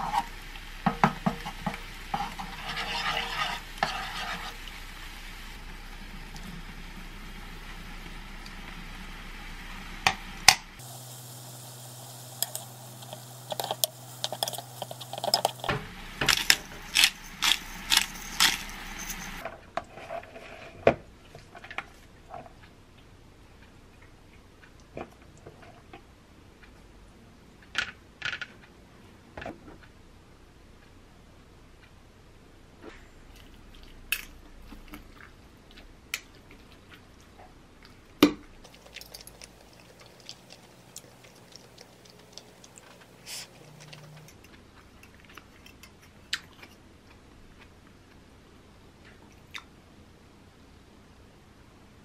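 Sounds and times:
utensils scraping in frying pan: 0:00.0 - 0:05.2, 0:10.8 - 0:20.8, 0:38.7 - 0:44.3
light hiss: 0:00.0 - 0:19.4, 0:38.6 - 0:44.4.

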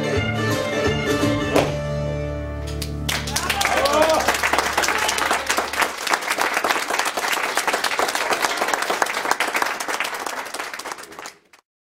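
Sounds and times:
audience applause: 0:02.8 - 0:11.6.

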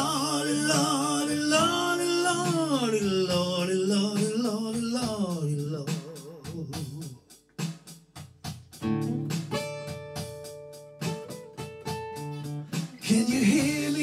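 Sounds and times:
faint acoustic guitar: 0:00.0 - 0:07.0, 0:08.7 - 0:14.0
man singing wordless blues: 0:00.0 - 0:07.5, 0:12.7 - 0:14.0.

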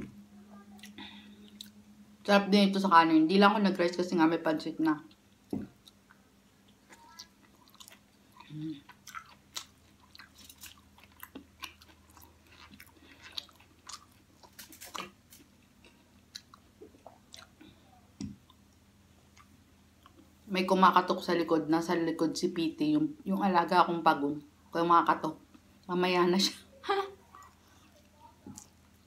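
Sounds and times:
crunchy chewing with mouth clicks: 0:00.6 - 0:01.8, 0:05.0 - 0:20.4, 0:27.2 - 0:29.0.

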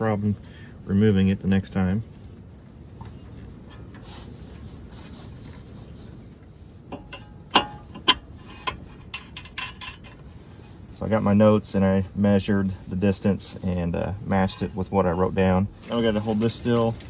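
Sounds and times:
faint handling and rubbing: 0:00.0 - 0:17.0
light metal clicks and knocks: 0:06.9 - 0:10.3.

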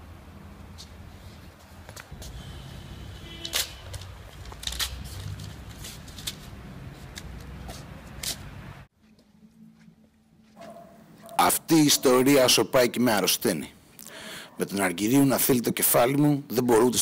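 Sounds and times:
paper crinkling: 0:03.2 - 0:08.5.

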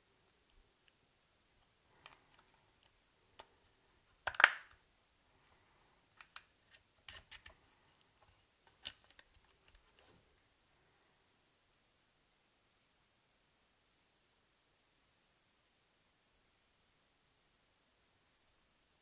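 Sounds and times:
plastic clicks from phone handling: 0:04.2 - 0:04.8.

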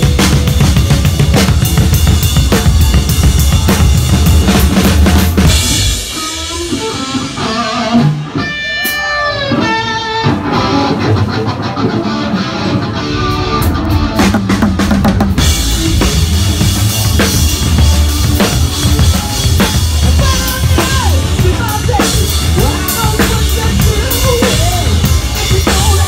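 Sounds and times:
drum kit: 0:00.0 - 0:26.0
guitar with bending notes: 0:00.0 - 0:26.0
live rock band: 0:00.0 - 0:26.0.

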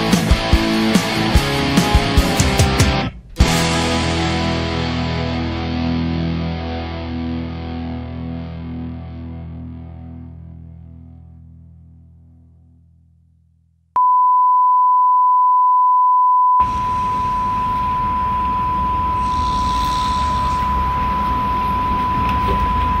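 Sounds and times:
rock song: 0:00.0 - 0:09.6
steady test tone: 0:14.0 - 0:23.0.

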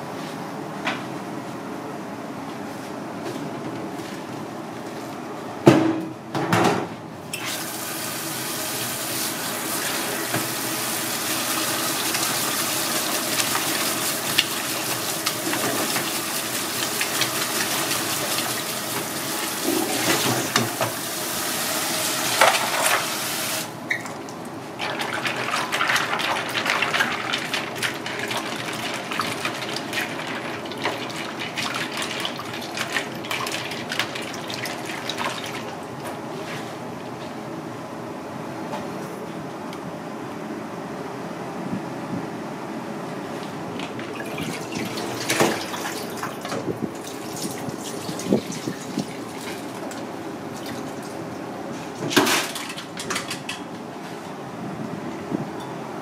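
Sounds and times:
tap water running into colander: 0:07.4 - 0:23.7, 0:24.8 - 0:35.8, 0:43.8 - 0:51.2
hands rinsing noodles: 0:09.2 - 0:20.7, 0:24.8 - 0:35.8
splashing water: 0:24.8 - 0:35.8.

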